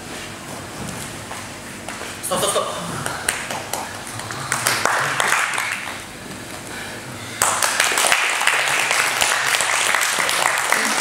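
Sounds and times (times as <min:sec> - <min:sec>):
audience applause: 0:03.3 - 0:06.0, 0:07.4 - 0:11.0.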